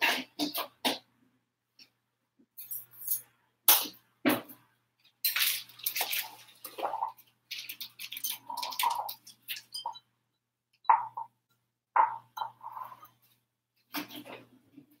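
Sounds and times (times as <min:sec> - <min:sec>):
plastic bag rustling: 0:05.4 - 0:09.6.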